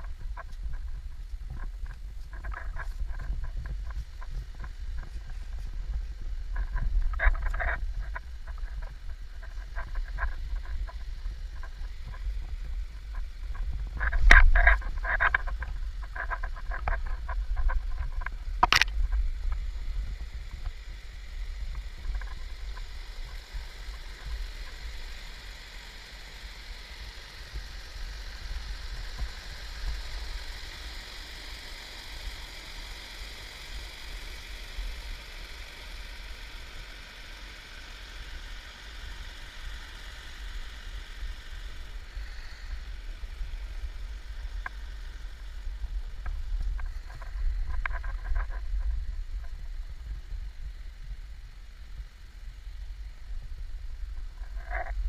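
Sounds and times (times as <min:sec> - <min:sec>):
low microphone rumble: 0:00.0 - 0:23.0
sharp click: 0:18.6 - 0:19.0.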